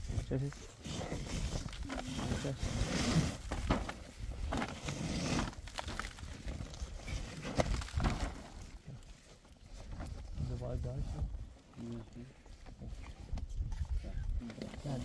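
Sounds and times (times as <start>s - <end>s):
rustling: 0.0s - 15.0s.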